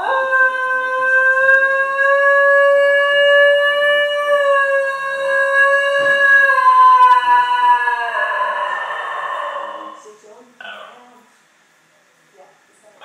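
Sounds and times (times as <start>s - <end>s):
dog howling: 0.0s - 10.0s.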